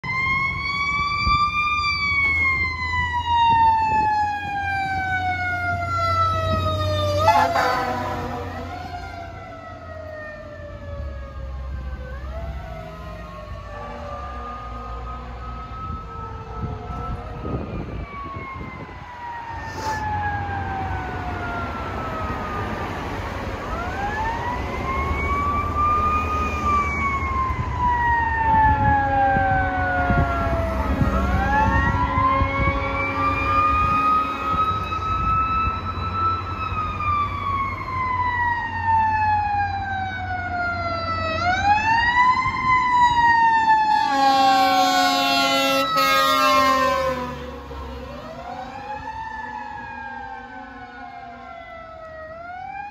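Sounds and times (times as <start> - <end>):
fire truck siren wailing: 0.0 - 52.9
air horn blaring: 7.2 - 8.9, 31.7 - 34.8, 43.9 - 47.7.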